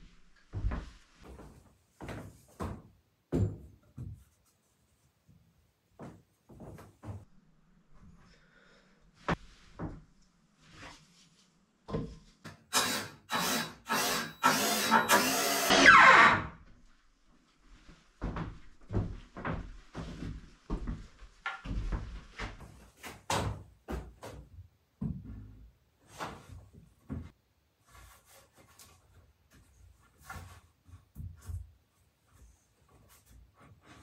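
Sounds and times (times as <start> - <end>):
drill working wood: 12.7 - 16.5.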